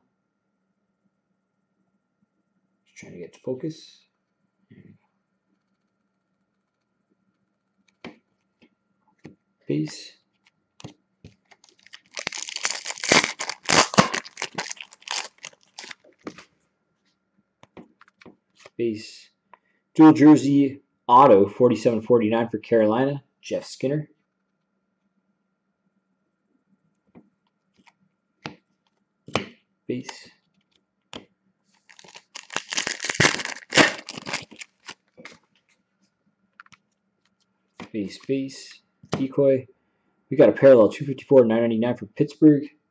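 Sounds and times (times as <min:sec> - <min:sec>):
foil wrapper tearing and crinkling: 0:11.5 - 0:16.4, 0:31.8 - 0:35.4.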